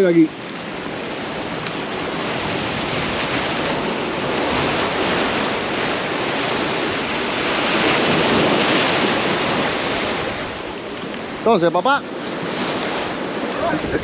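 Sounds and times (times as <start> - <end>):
surf breaking over rocks: 0.0 - 14.0.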